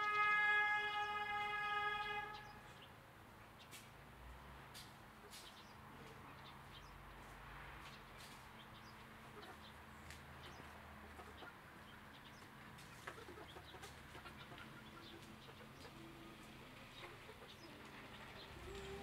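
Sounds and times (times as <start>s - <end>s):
sharp clicks of birds shifting: 4.7s - 6.2s
chicks clucking and chirping: 8.2s - 19.0s.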